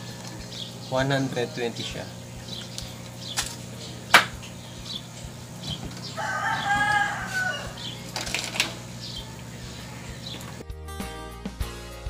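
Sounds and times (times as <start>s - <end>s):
rooster crowing: 5.9s - 9.9s.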